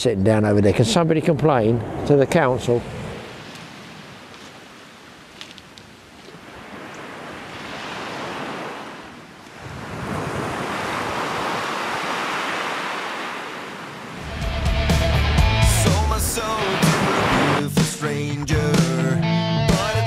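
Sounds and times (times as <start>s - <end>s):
waves breaking on shingle beach: 2.0s - 14.2s, 16.3s - 17.6s.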